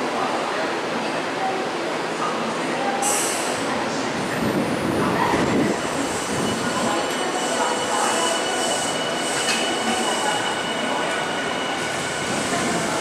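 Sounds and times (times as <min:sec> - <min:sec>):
train wheels rolling: 0:05.4 - 0:13.0.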